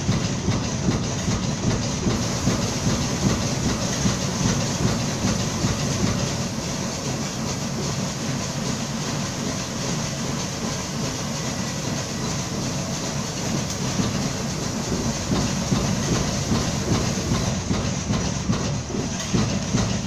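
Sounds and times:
machine mechanical clatter: 0.0s - 20.0s
rapid mechanical knocks: 0.0s - 20.0s.

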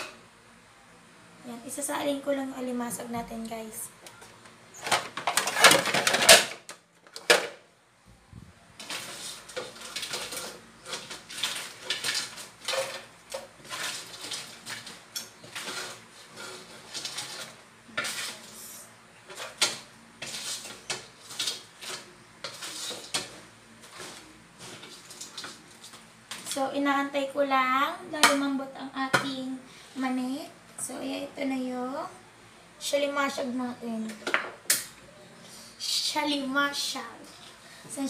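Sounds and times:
ladle clinking and scraping in wok: 19.3s - 26.0s.

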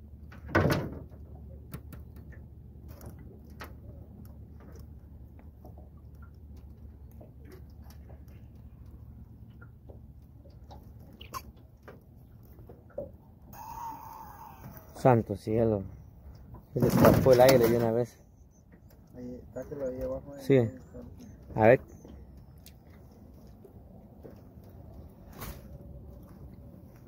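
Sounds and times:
low steady rumble: 0.0s - 16.7s.

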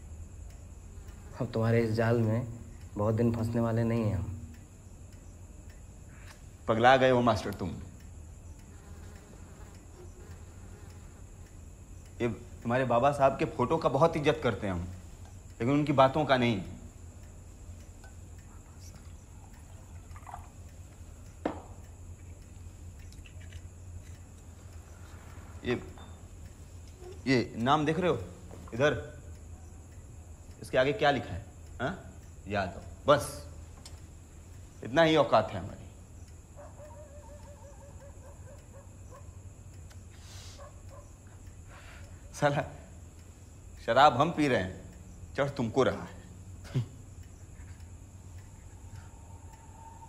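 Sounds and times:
steady low hum: 0.0s - 50.0s
faint wavering animal call: 36.6s - 39.3s, 48.4s - 50.0s
short breathy hiss: 40.1s - 40.8s, 41.6s - 42.2s.

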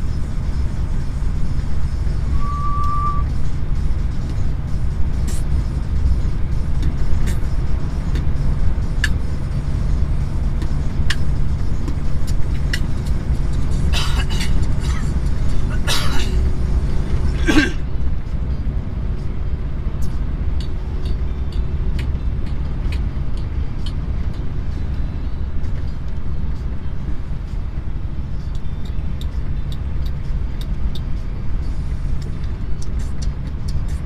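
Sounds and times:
truck engine drone: 0.0s - 34.0s
faint light ticks: 20.0s - 25.0s, 28.4s - 31.3s.

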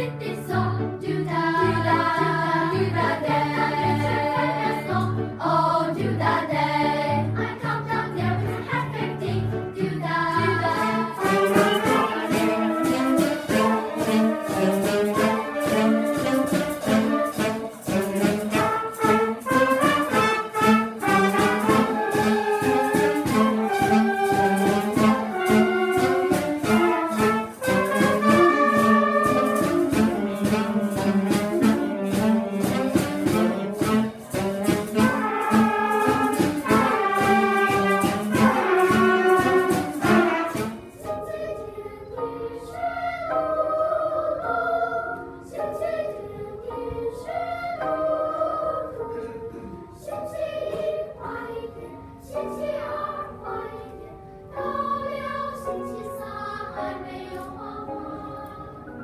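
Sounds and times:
children's choir singing: 0.0s - 59.0s
children's flute ensemble: 10.5s - 42.2s.

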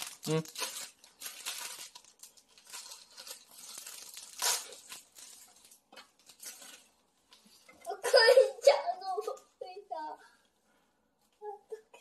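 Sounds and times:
plastic wrapper crinkling and tearing: 0.0s - 7.4s.

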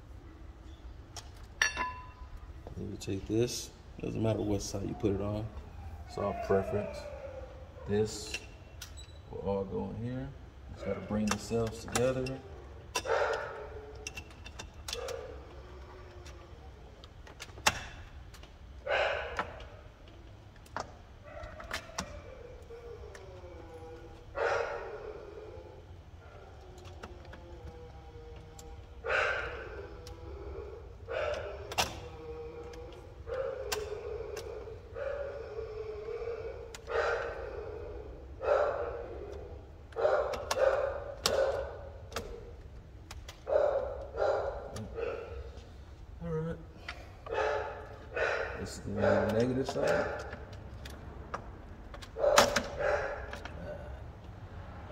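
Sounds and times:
metal clicks and knocks: 1.1s - 2.5s, 11.1s - 16.4s, 39.3s - 43.5s
sharp metal clicks: 32.7s - 34.6s.

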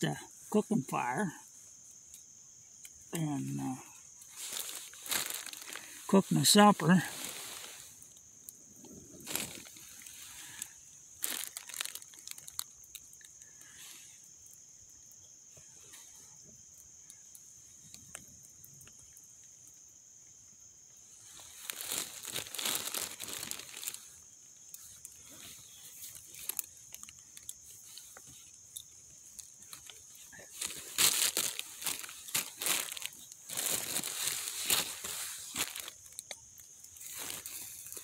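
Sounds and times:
wood fire crackling: 0.0s - 38.0s
fire pops and snaps: 1.8s - 6.0s, 7.3s - 15.3s, 15.9s - 20.4s, 34.7s - 38.0s.

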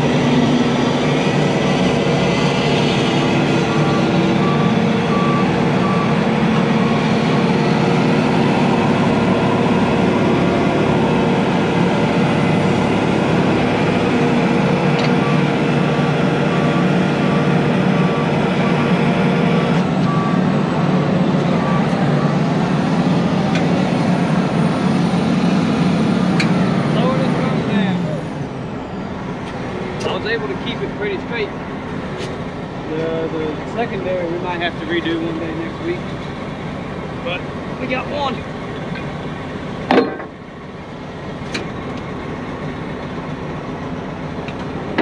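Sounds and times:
diesel engine running: 0.0s - 45.0s
electronic warning beeps: 3.2s - 7.7s, 15.1s - 20.5s, 21.4s - 22.5s.

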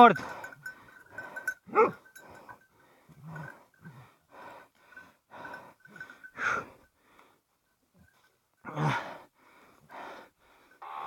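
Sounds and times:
heavy animal breathing: 0.2s - 7.3s.

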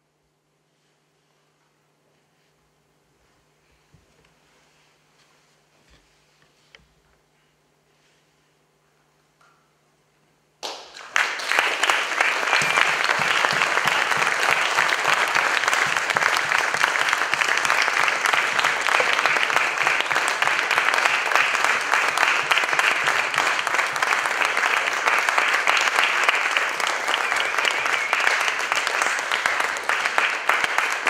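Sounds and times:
audience applauding: 10.6s - 31.0s.

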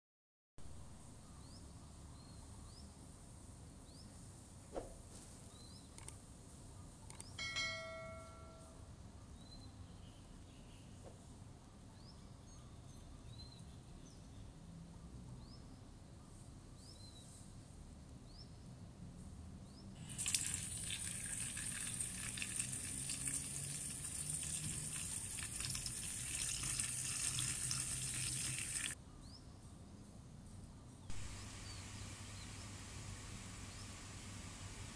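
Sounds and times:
tap water splashing into metal bowl: 20.1s - 29.0s.

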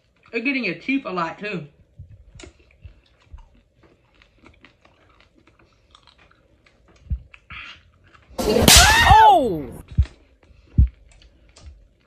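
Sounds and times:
crunchy candy chewing: 2.3s - 8.4s
sticky mouth clicks: 7.0s - 8.3s
loud thump: 8.4s - 9.8s.

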